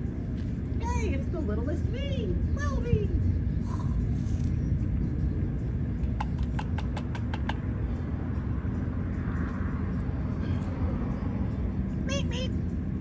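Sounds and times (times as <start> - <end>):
steady low rumble: 0.0 - 13.0
sharp taps: 6.0 - 7.6.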